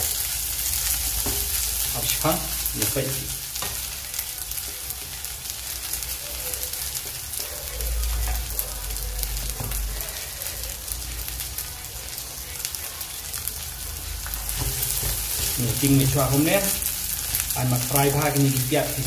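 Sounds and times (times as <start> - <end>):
food sizzling in a pan: 0.0 - 19.0
wooden spatula knocking pan: 14.6 - 16.4.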